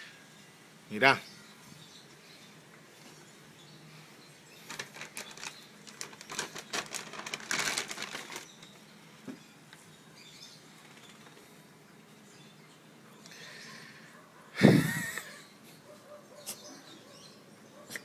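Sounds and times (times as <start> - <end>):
plastic bag crinkling: 4.6 - 8.8.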